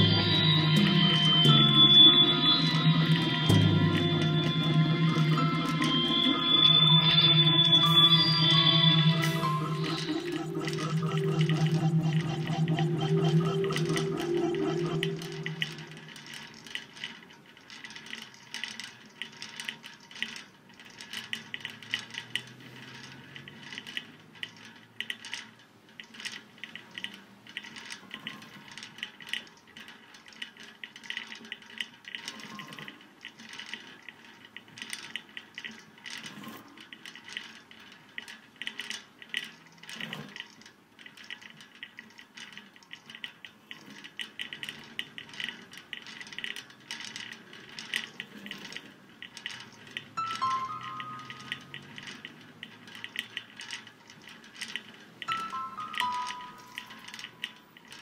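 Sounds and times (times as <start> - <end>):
eerie horror film score: 0.0 - 16.5.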